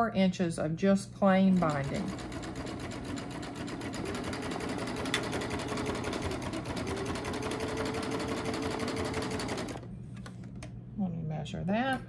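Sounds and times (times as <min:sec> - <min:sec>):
serger stitching: 0:01.6 - 0:09.8.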